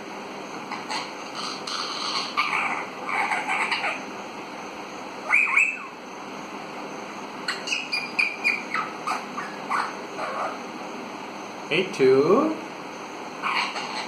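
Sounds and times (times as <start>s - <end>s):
parakeet gliding call: 0.6s - 4.2s, 5.2s - 6.1s, 7.4s - 10.7s, 13.3s - 14.0s
parakeet high chirps and whistles: 0.7s - 4.0s, 5.2s - 6.0s, 7.4s - 10.6s, 13.4s - 14.0s.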